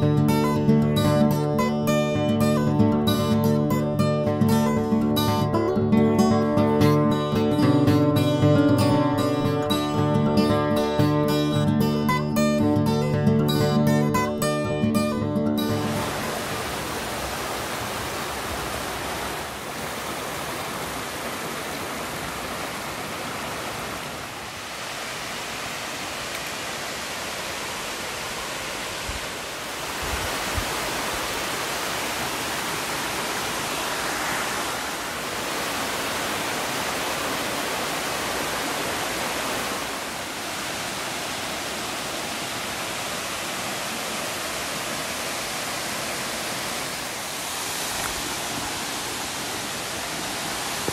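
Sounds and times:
creek water rushing: 0.0 - 50.9.

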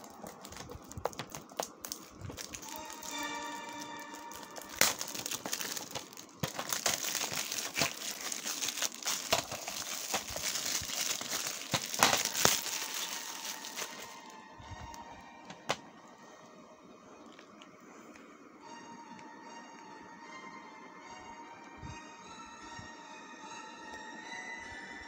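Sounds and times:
plastic shrink-wrap crinkling: 0.0 - 15.8.

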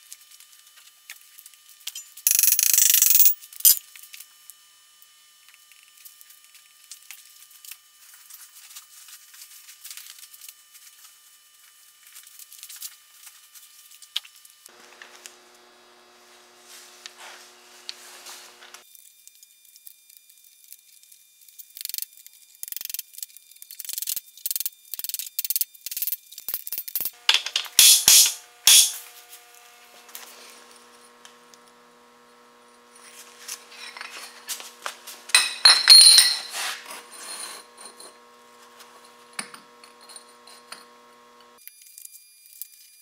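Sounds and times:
steel parts clinking: 1.9 - 3.8, 25.9 - 29.1, 33.0 - 38.3.

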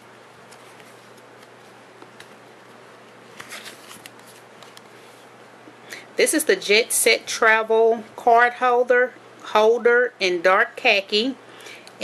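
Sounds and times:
steady low hum: 0.0 - 12.0
faint rustling of card holder: 0.4 - 5.3.

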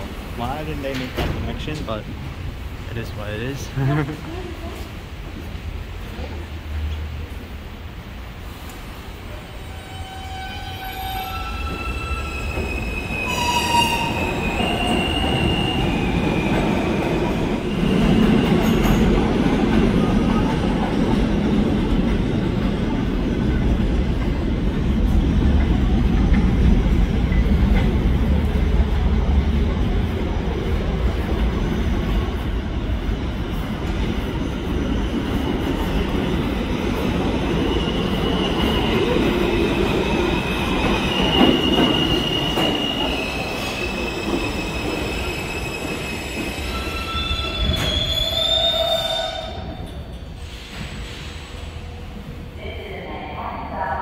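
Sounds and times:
steady train tones: 0.0 - 54.0
subway train rumble: 0.0 - 54.0
train wheel squeals: 9.6 - 16.8, 40.2 - 51.7.

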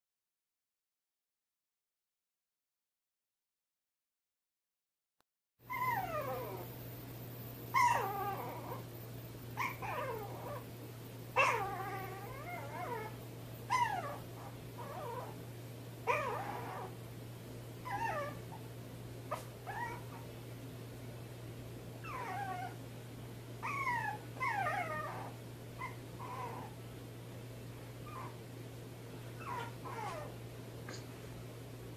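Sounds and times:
puppy whining: 5.7 - 6.8, 7.7 - 8.9, 9.6 - 17.0, 17.8 - 18.7, 19.3 - 20.4, 22.0 - 22.8, 23.6 - 26.8, 27.9 - 28.4, 29.3 - 31.0
steady low hum: 5.7 - 31.9.

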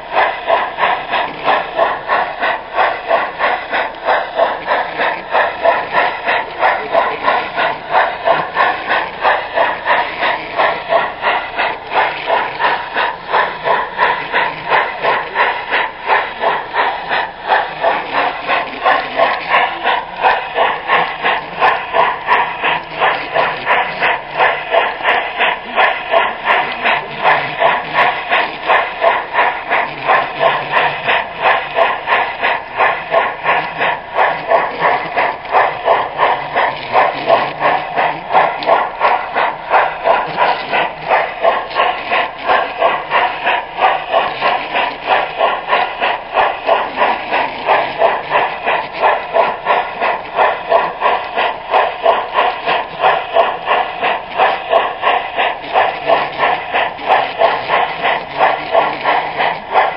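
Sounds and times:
model train rhythmic clatter: 0.0 - 59.9.

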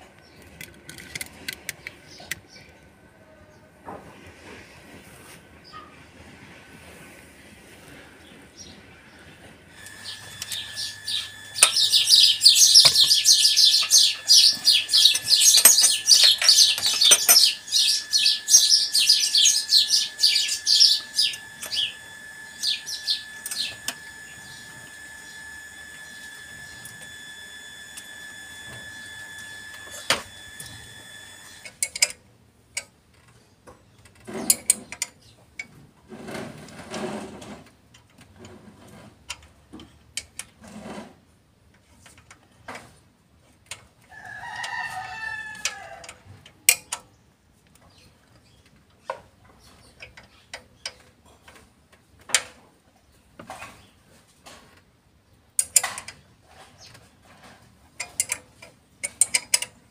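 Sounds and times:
high-pitched whine: 9.7 - 31.7
rooster crowing: 44.1 - 46.3.

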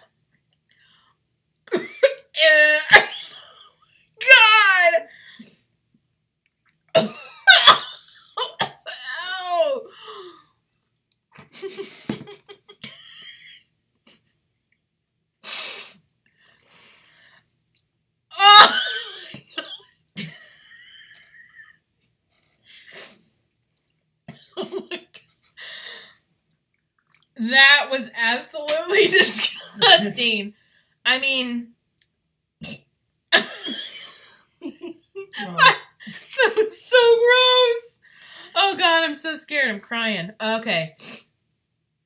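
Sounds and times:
women coughing: 7.0 - 9.0
women laughing: 33.4 - 35.9.

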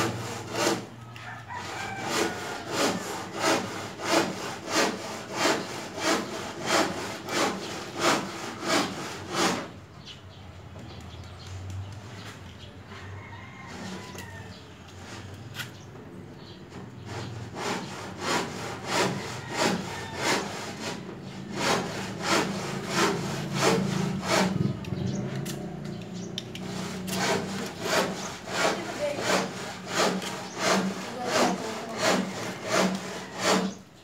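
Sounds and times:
blade sawing through stem: 0.0 - 9.7, 17.1 - 25.7, 26.4 - 33.8.

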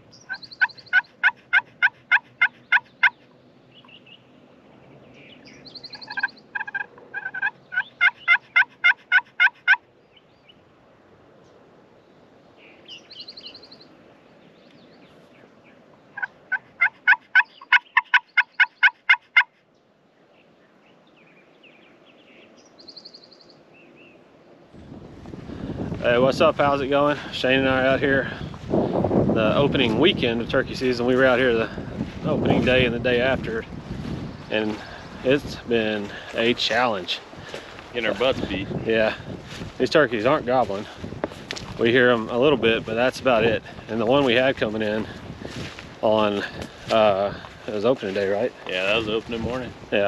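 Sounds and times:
turkey yelping: 0.2 - 3.3, 5.9 - 9.8, 16.2 - 19.6.

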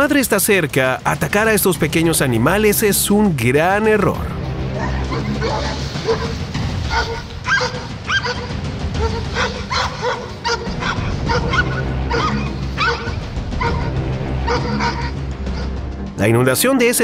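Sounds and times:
background music: 0.0 - 17.0
dog barking: 4.8 - 15.7.

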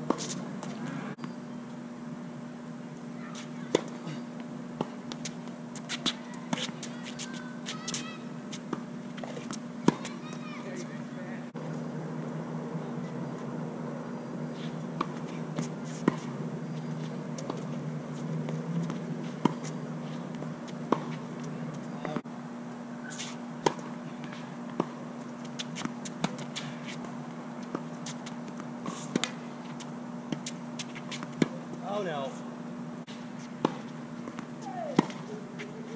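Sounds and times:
steady low hum: 0.0 - 35.9
ball bouncing on hard court: 8.7 - 10.6, 33.6 - 35.7.

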